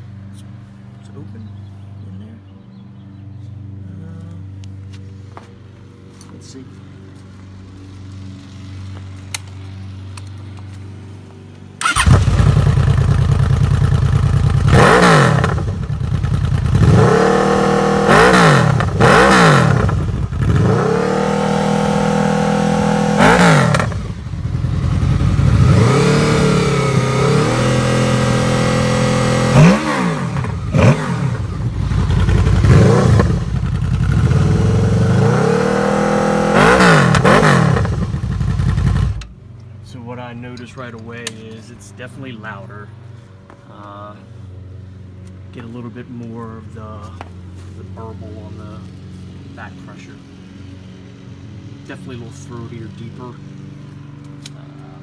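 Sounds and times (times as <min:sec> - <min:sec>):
motorcycle engine revving: 0:11.8 - 0:39.4.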